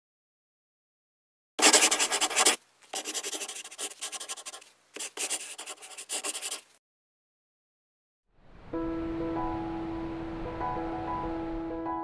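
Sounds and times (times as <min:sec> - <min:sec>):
scratchy scribbling: 0:01.6 - 0:06.8.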